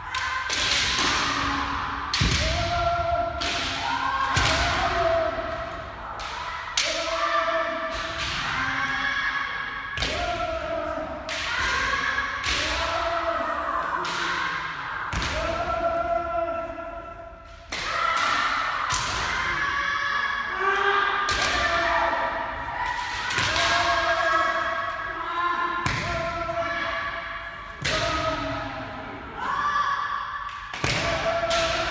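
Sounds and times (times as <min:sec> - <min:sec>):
people shouting: 0:00.0 - 0:31.9.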